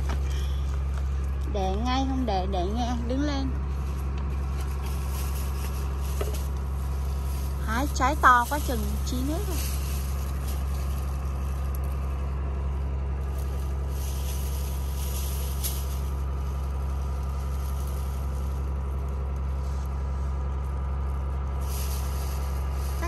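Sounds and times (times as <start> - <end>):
leaves and branches rustling: 0.0 - 23.0
low engine drone: 0.0 - 23.0.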